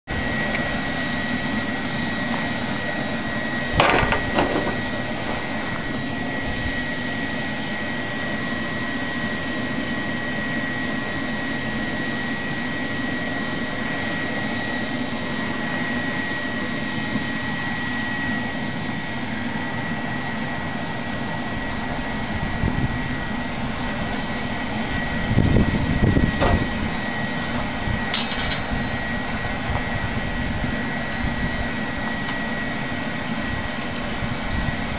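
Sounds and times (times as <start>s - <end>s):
shop vacuum motor whining: 0.2s - 34.9s.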